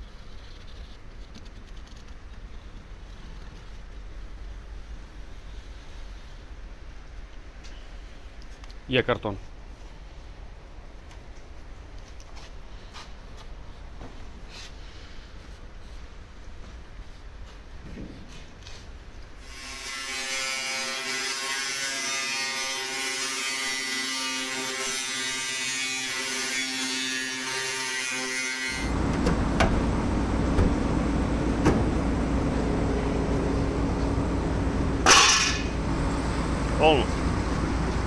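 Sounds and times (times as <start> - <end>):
low steady noise with knocks: 17.4 - 18.5, 31.6 - 32.0
angle grinder cutting sheet metal: 19.4 - 29.0, 35.0 - 35.8
loud metal clatter: 35.0 - 35.8.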